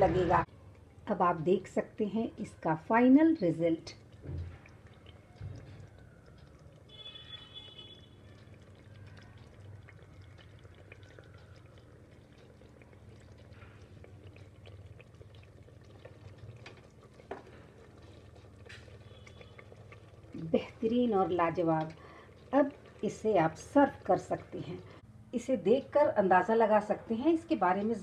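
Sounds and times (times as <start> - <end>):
gravy bubbling: 0.0 - 25.1, 25.7 - 28.0
low steady hum: 0.0 - 28.0.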